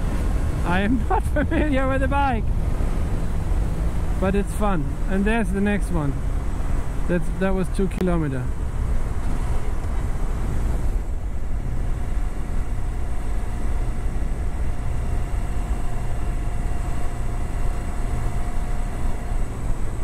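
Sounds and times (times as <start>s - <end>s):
wind noise: 0.0s - 4.2s
motorcycle engine rumble: 0.0s - 20.0s.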